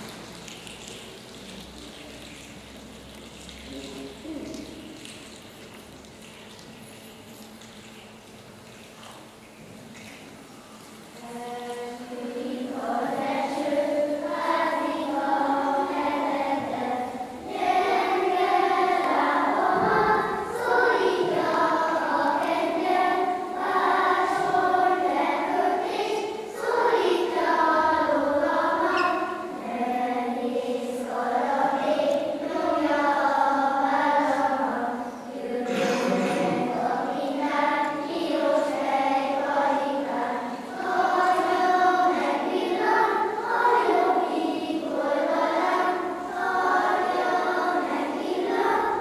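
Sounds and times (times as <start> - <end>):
children's choir singing: 0.0 - 0.3, 11.2 - 49.0.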